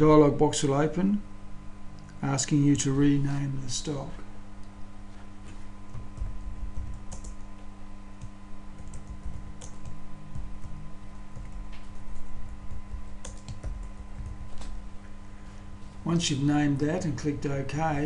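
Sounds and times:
steady electrical hum: 0.0s - 18.0s
keyboard typing: 5.9s - 7.5s, 8.2s - 14.8s.

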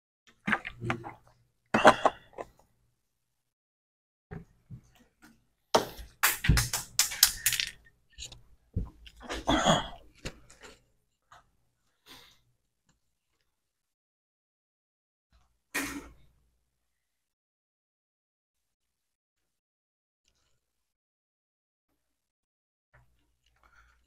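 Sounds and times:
objects being handled clicking: 6.2s - 8.4s.

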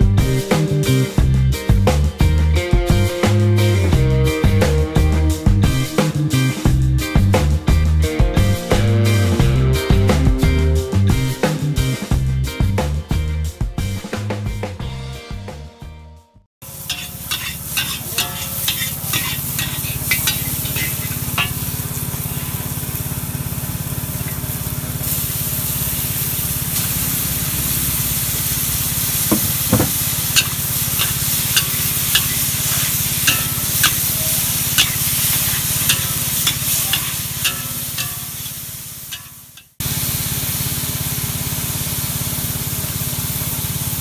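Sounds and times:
food sizzling in a wok: 16.6s - 44.0s
metal spatula scraping a wok: 16.8s - 22.5s, 29.3s - 39.8s.

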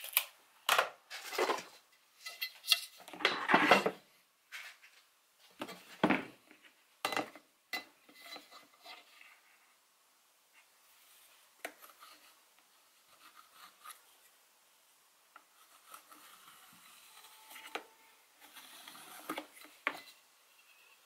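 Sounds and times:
pencil scratching on plastic: 11.7s - 14.0s, 15.5s - 17.8s.

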